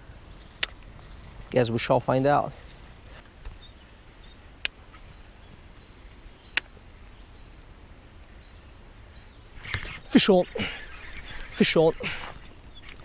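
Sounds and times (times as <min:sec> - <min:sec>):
fishing reel being cranked: 0:09.6 - 0:13.0
sharp reel clicks: 0:09.6 - 0:13.0.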